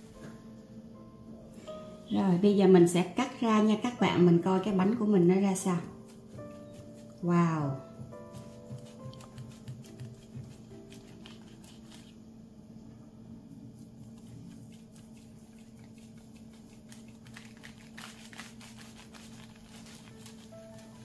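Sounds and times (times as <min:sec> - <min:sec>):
steady low hum: 0:00.0 - 0:20.8.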